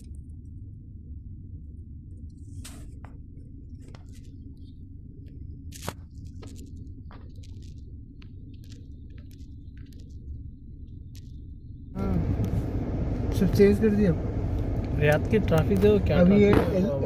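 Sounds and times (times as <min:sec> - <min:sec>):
car engine idling rumble: 0:00.0 - 0:17.0.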